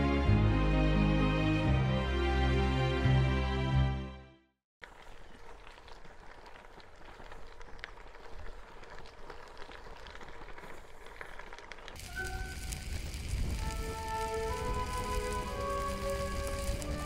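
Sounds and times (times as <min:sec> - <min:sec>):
music: 0:00.0 - 0:04.6, 0:12.0 - 0:17.0
bicycle tyres on gravel: 0:04.8 - 0:17.0.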